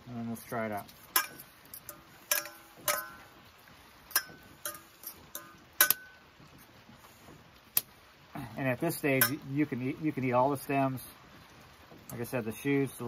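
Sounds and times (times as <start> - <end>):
metal fork clinking on saucepan: 1.2 - 3.3, 4.1 - 6.2.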